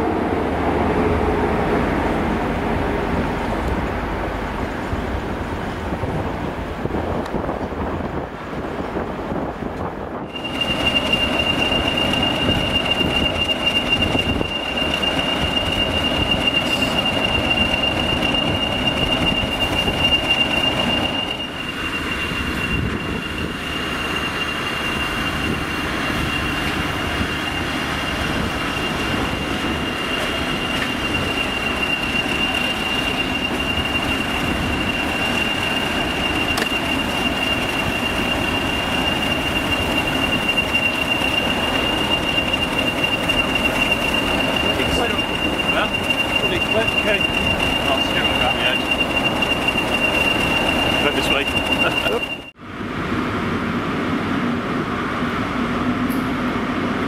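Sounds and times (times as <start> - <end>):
track machine engine running: 9.7 - 57.0
high-pitched squeal: 10.2 - 52.6.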